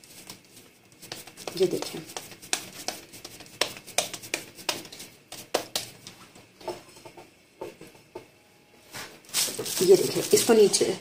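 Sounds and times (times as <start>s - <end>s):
plastic bag crinkling: 9.2s - 10.8s.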